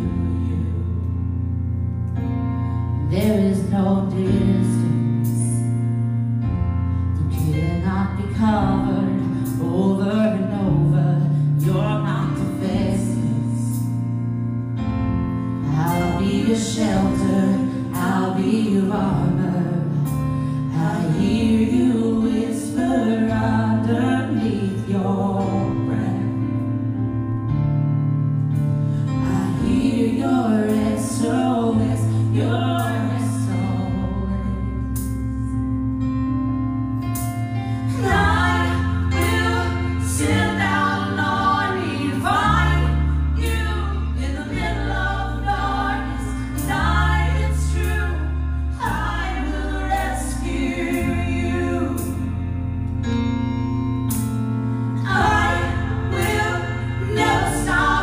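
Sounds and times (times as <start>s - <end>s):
sustained instrumental accompaniment: 25.9s - 58.0s.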